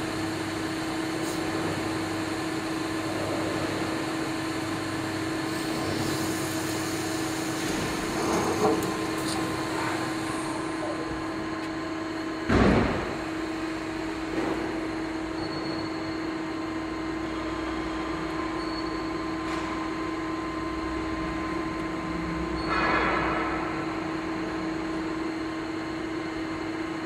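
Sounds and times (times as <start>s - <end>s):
lathe mechanical hum: 0.0s - 27.0s
machine door sliding open: 7.7s - 10.6s.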